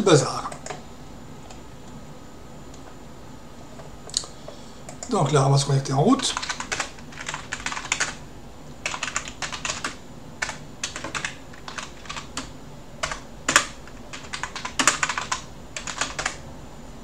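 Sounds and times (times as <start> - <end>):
typing on computer keyboard: 6.3 - 8.2, 8.8 - 16.4.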